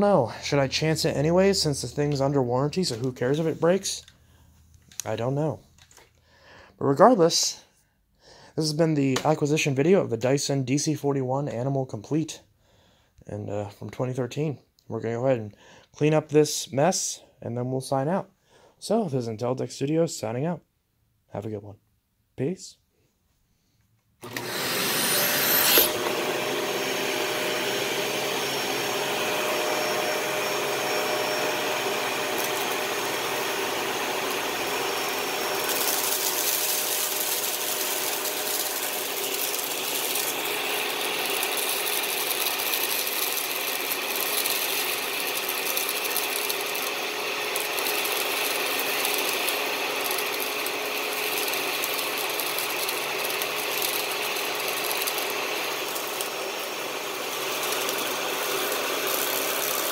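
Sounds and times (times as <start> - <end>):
vacuum cleaner whine: 24.2 - 59.9.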